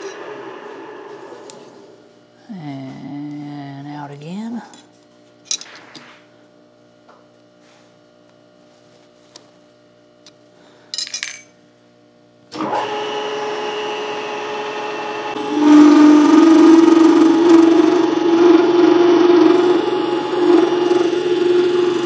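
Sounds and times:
milling machine motor running: 12.5s - 22.0s.

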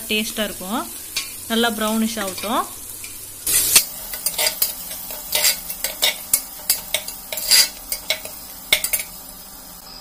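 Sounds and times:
onions sizzling in oil: 0.0s - 10.0s
metal ladle scraping a pot: 3.5s - 9.1s.

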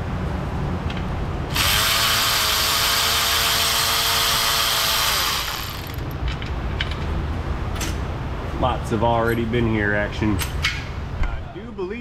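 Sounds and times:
power ratchet whining: 1.5s - 6.2s.

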